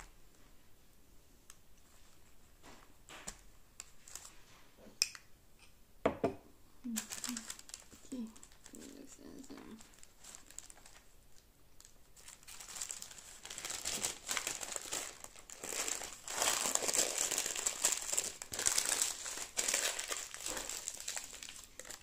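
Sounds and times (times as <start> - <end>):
parchment paper crinkling: 6.9 - 22.0.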